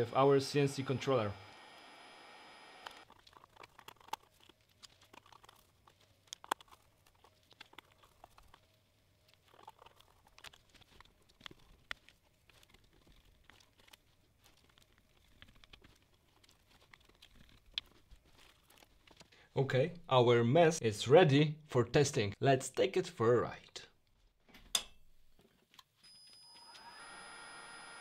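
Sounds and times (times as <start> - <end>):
wires clicking and rustling: 2.8 - 19.4.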